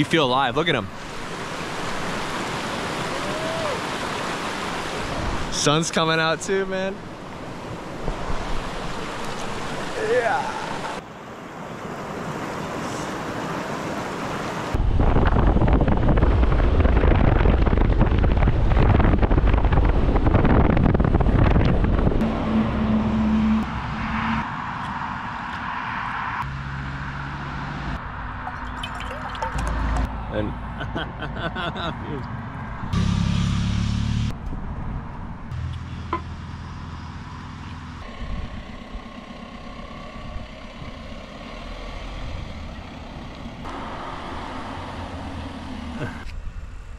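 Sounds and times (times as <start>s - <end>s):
deep road rumble: 0.0s - 46.9s
wind rushing over microphone: 12.6s - 22.4s, 38.0s - 39.0s
van engine running: 35.4s - 46.9s.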